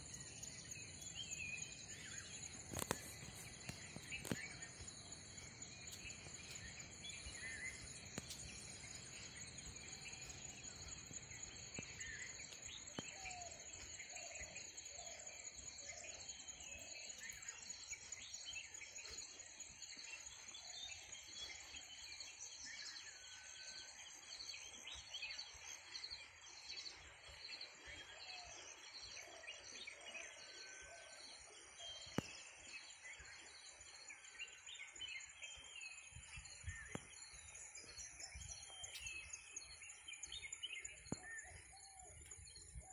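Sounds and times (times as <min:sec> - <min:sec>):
birds chirping: 0:00.0 - 0:23.4
insect chorus: 0:00.0 - 0:42.9.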